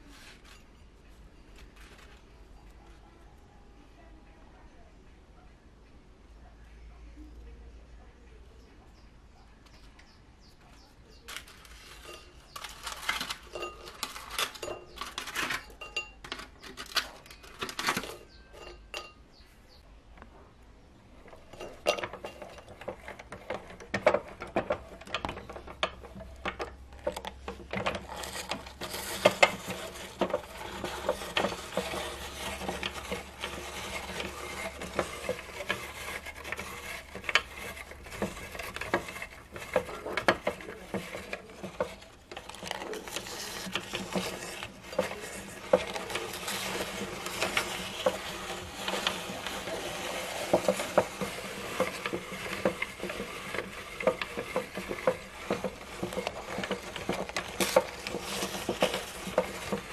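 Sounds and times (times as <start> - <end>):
biscuits clinking on glass plate: 11.2 - 19.4, 21.3 - 59.9
meat grinder crushing biscuits: 21.4 - 59.9.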